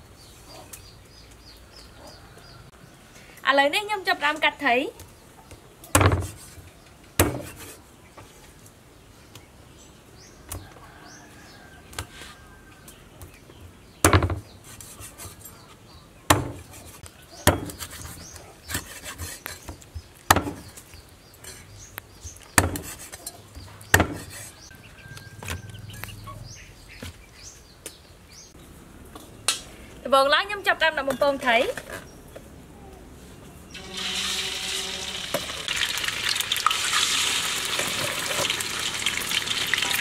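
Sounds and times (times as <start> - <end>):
cleaver chopping on wooden block: 16.3 - 16.7, 17.4 - 18.0, 20.3 - 20.6, 22.6 - 23.0, 23.9 - 24.3.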